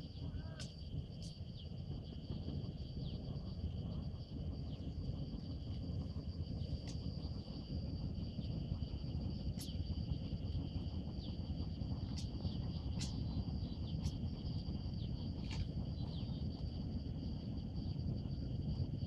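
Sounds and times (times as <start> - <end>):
insects trilling: 0.0 - 19.0
steady low rumble: 0.0 - 19.0.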